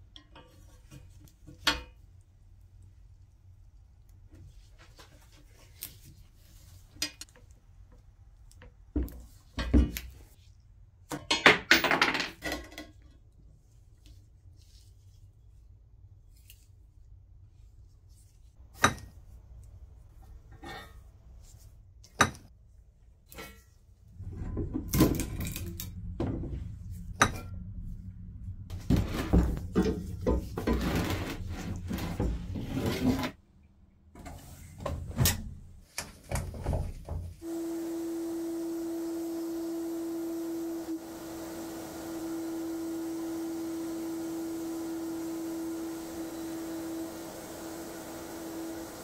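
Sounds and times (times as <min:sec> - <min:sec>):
sandblasting gun hissing: 0:37.4 - 0:49.0.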